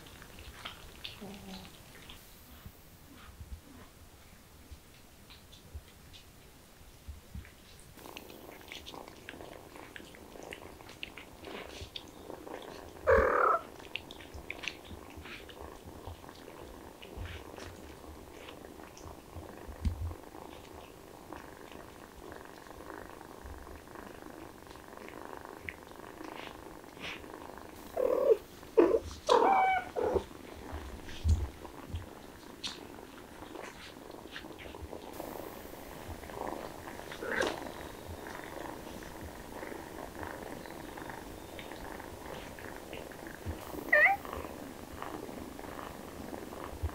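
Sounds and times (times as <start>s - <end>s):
cats purring: 0.0s - 46.9s
faint ticks: 4.7s - 28.0s, 36.1s - 46.9s.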